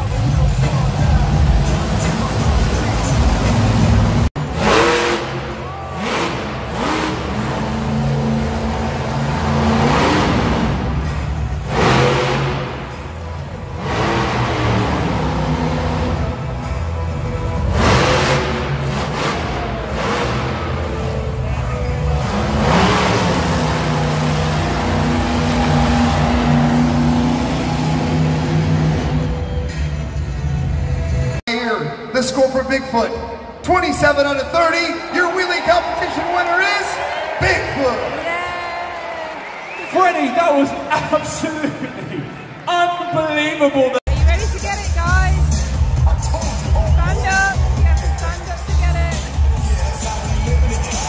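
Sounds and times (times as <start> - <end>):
monster truck engine revving: 0.0 - 31.4, 44.1 - 51.0.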